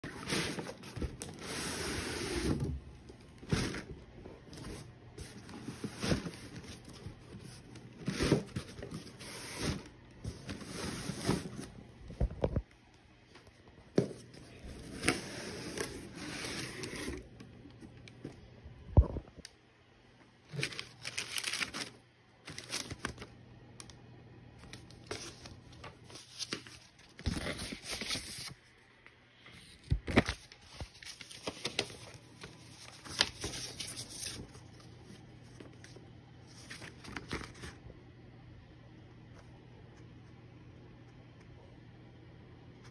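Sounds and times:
cardboard tearing and rustling: 0.0s - 2.8s, 20.5s - 23.3s.

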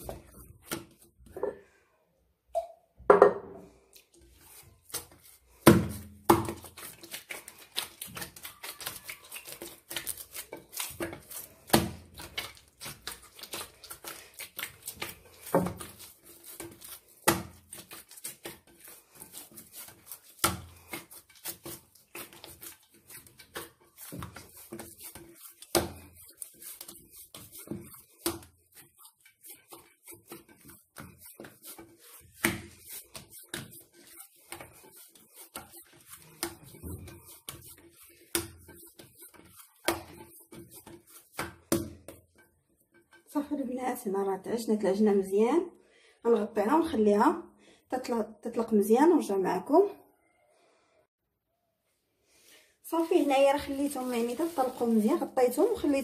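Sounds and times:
hands kneading dough: 0.0s - 1.4s, 3.7s - 44.5s, 52.4s - 56.0s
dough thumping in dish: 14.6s - 18.7s.

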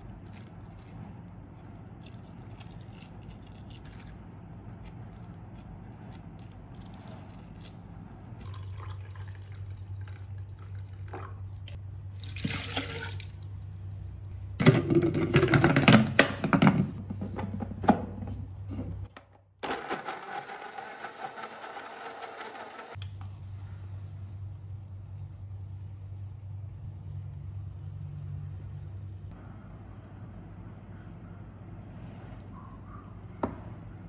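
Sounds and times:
blender motor running: 19.6s - 23.0s.

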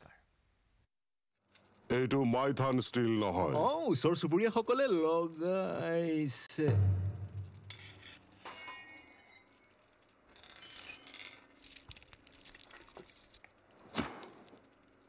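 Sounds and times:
metal scraping: 6.7s - 9.6s.

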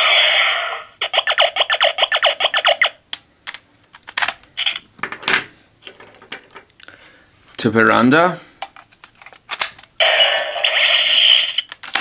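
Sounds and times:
loud electronic sound: 0.0s - 3.0s.

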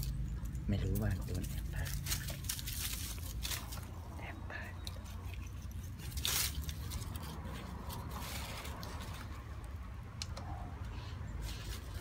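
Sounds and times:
dog rustling through dry leaves: 0.9s - 4.1s, 5.9s - 9.4s.

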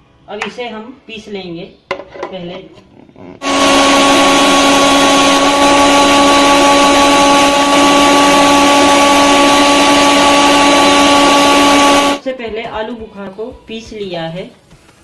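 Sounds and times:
mixer grinder motor whine: 3.4s - 12.2s.

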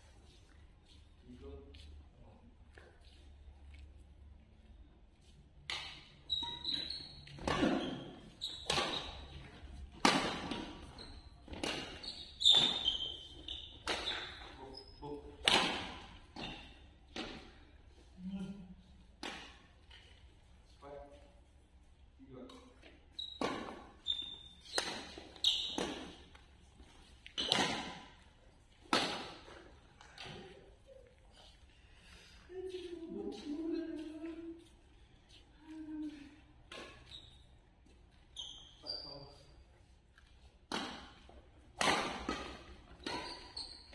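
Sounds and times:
shoes squeaking on court: 5.2s - 17.7s, 22.5s - 31.7s, 36.6s - 43.9s
rackets striking shuttlecock: 8.6s - 9.2s, 10.0s - 10.8s, 11.5s - 13.0s, 13.7s - 14.4s, 15.4s - 16.5s, 24.4s - 26.4s, 27.3s - 28.2s, 28.8s - 30.5s, 40.7s - 43.6s.

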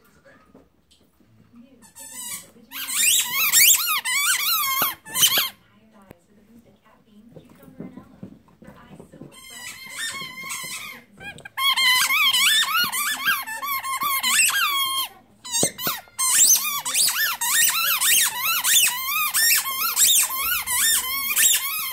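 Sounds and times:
dog chewing toy: 0.4s - 5.6s, 7.3s - 21.9s
squeaky toy squeaks: 1.8s - 5.6s, 9.4s - 21.9s.

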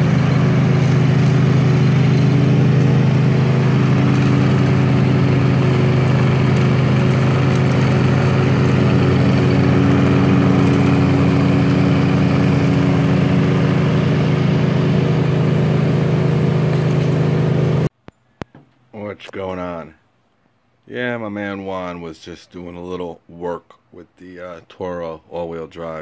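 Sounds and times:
lawn mower engine running: 0.0s - 17.9s.

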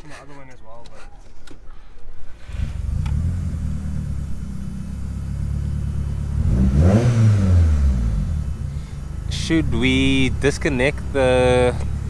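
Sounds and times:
car engine idling and revving: 2.0s - 12.0s.

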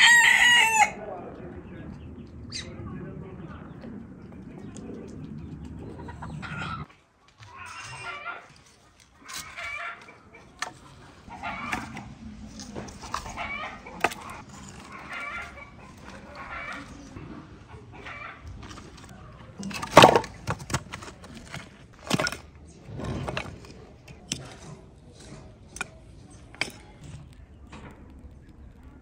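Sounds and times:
chickens clucking: 4.4s - 21.5s
firewood logs knocking: 11.6s - 17.1s, 18.5s - 24.5s.

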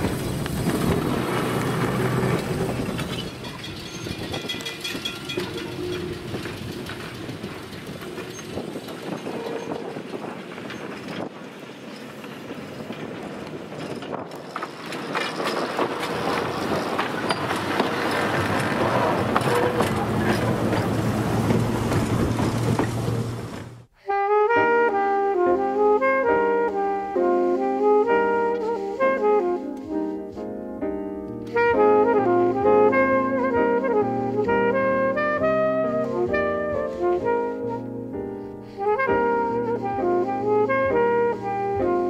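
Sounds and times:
trolley wheels on rails: 0.0s - 24.0s.

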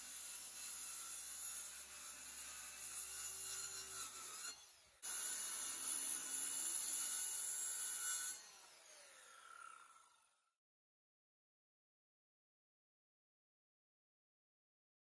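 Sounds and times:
circular saw cutting wood: 0.0s - 10.6s
saw motor winding down: 8.2s - 10.5s.

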